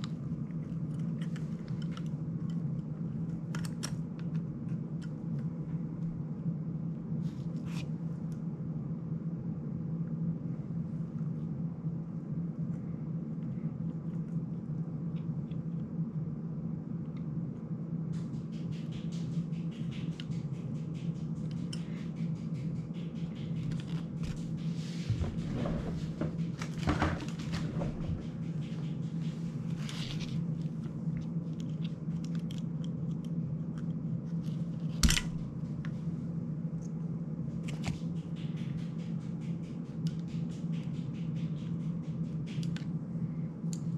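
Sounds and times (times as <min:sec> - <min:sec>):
clicks and rustling of drone parts: 0:00.0 - 0:05.6, 0:18.7 - 0:24.7, 0:26.4 - 0:36.0
steady low hum: 0:00.0 - 0:43.9.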